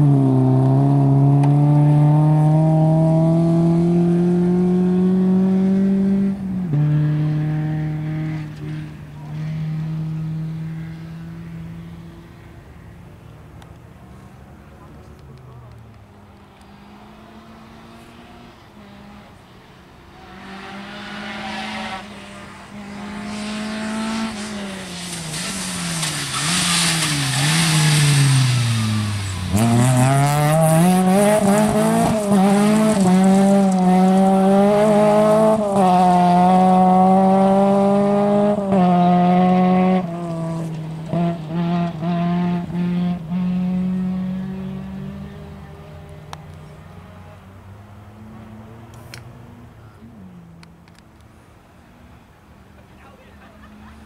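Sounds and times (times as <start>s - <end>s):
rally car engine accelerating: 0.0s - 12.2s, 20.1s - 47.3s.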